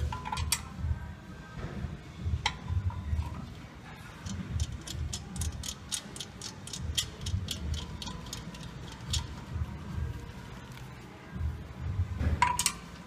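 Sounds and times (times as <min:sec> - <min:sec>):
ratchet wrench clicking: 0:04.2 - 0:09.6.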